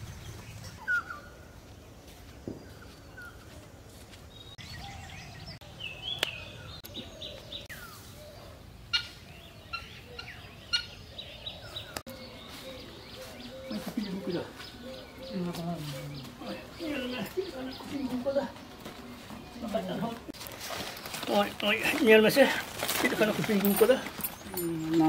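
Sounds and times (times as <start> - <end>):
birds chirping and whistling: 0.0 - 3.6, 4.3 - 20.0.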